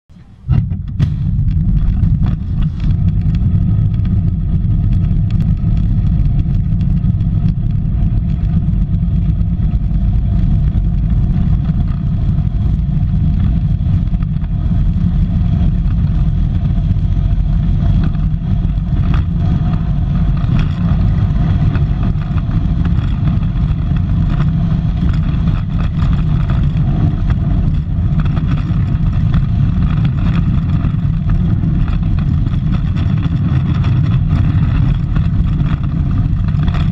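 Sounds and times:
wheels rumbling on asphalt: 0.1s - 36.9s
wind noise: 0.1s - 36.9s.

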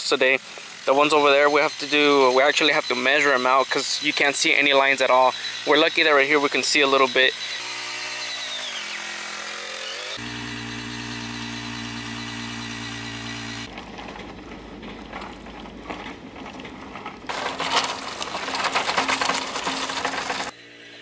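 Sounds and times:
small gas engine running: 0.0s - 21.0s
clattering: 13.7s - 20.5s.

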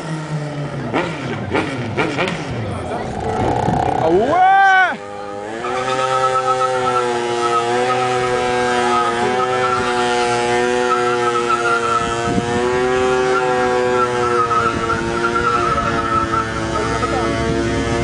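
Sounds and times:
motorcycle engine at high revs: 0.0s - 18.0s.

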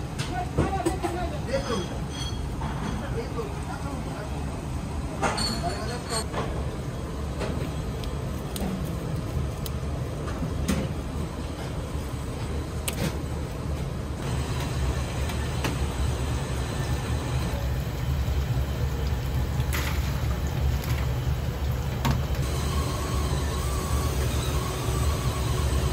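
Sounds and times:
kitchen equipment rumble: 5.1s - 25.9s
utensils clinking: 5.2s - 6.3s.

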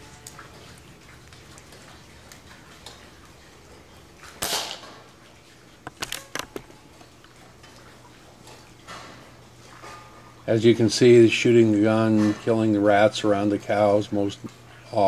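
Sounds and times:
airgun firing: 4.4s - 4.9s.

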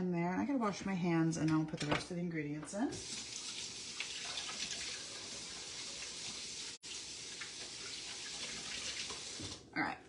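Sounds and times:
faucet running into sink: 2.9s - 9.7s.

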